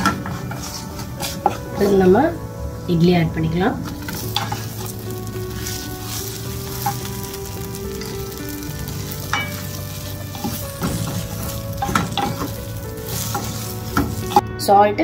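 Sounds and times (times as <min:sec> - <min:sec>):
spatula scraping and knocking pan: 0:00.0 - 0:02.0, 0:03.9 - 0:14.4
light sizzle in frying pan: 0:03.8 - 0:14.4.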